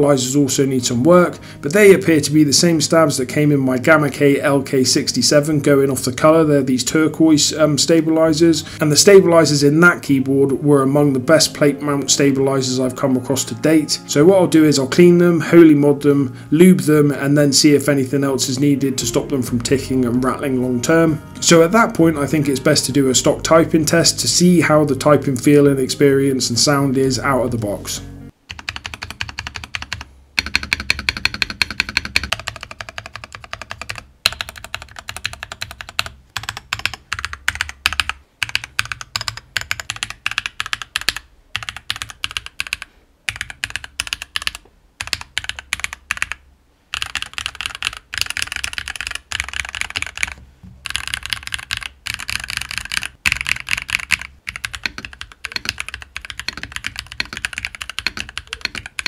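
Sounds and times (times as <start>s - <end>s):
mechanical keyboard typing: 28.5s - 59.0s.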